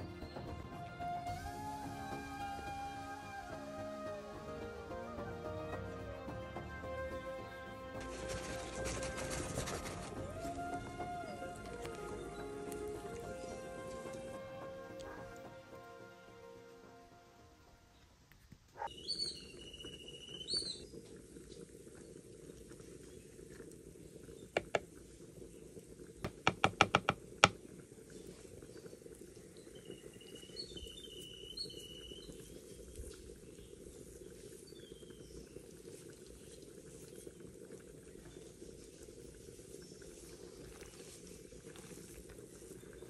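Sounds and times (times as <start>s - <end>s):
birds chirping: 4.9s - 16.4s, 18.8s - 21.0s, 28.1s - 37.4s.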